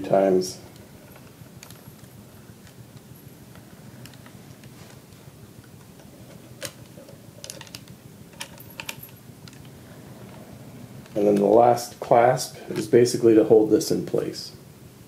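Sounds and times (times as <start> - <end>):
chain clinking: 7.0 - 10.4
chain links rattling: 7.4 - 9.7.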